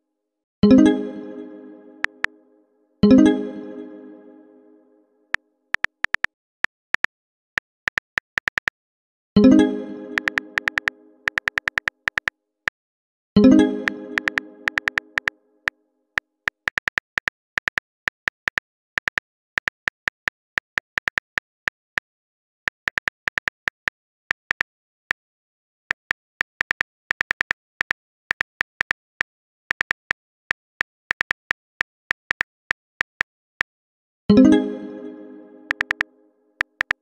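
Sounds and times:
keyboard typing clicks: 2.0s - 2.3s, 5.8s - 6.3s, 7.9s - 8.7s, 10.1s - 12.3s, 13.8s - 15.3s, 16.5s - 21.4s, 22.7s - 25.1s, 25.9s - 29.0s, 29.7s - 33.3s, 35.7s - 37.0s.

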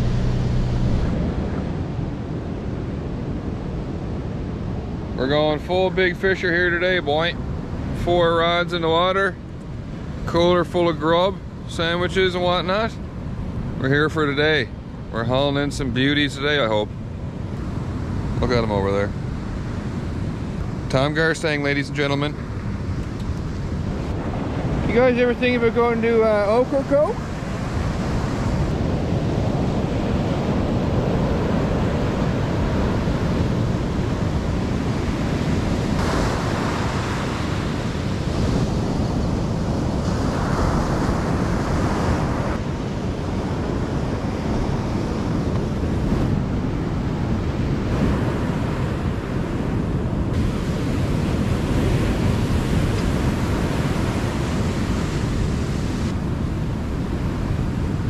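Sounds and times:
wind on microphone: 0.0s - 8.3s, 14.4s - 58.0s
surf breaking on beach: 23.6s - 58.0s.

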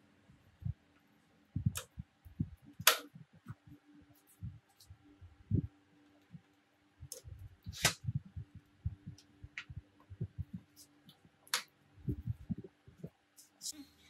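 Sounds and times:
faint steady hum: 0.0s - 14.0s
soft low knocks and bumps: 1.6s - 3.7s, 5.2s - 5.7s, 7.0s - 11.4s, 12.0s - 13.1s
sharp clicks: 2.7s - 3.2s.

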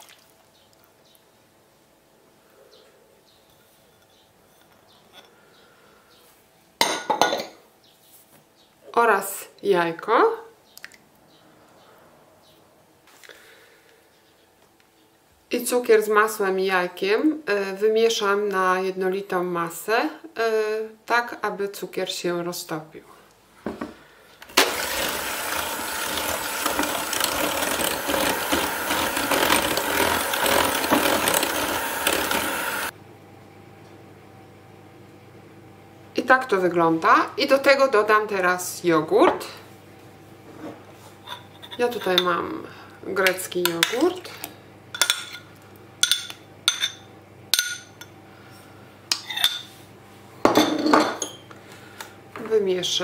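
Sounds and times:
kitchenware clattering: 6.8s - 7.6s, 45.0s - 48.1s, 49.1s - 49.8s, 50.5s - 51.5s
electric hand mixer whisking: 24.5s - 32.9s
kitchenware clinking on glass bowl: 50.5s - 51.5s.

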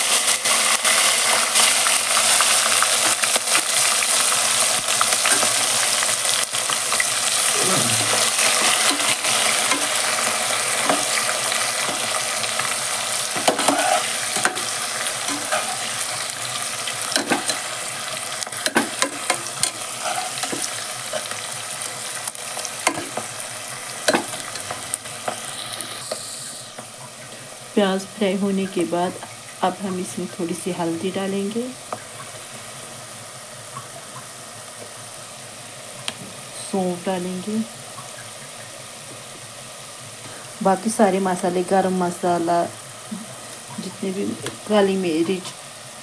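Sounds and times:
onions sizzling in hot oil: 0.0s - 46.0s
spatula scraping a pot: 13.4s - 16.0s, 18.9s - 21.3s.

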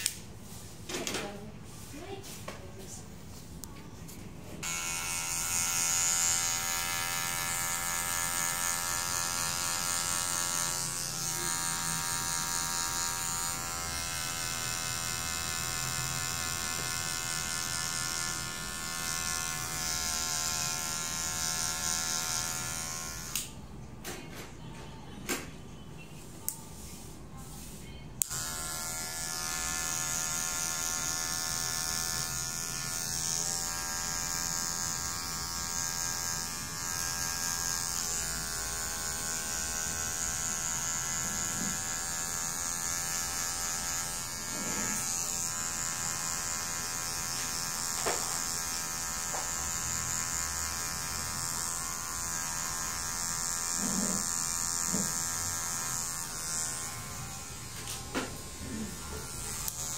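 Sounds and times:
electric hair clipper buzzing: 4.6s - 23.6s, 28.2s - 59.9s.

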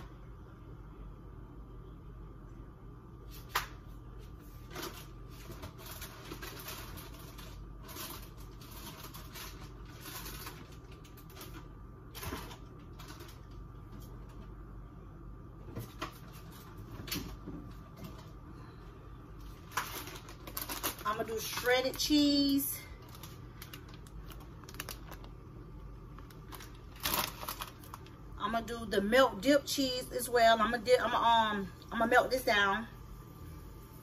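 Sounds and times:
faint steady hum: 0.0s - 34.0s
packaging rustling: 4.6s - 13.6s, 19.4s - 28.2s.

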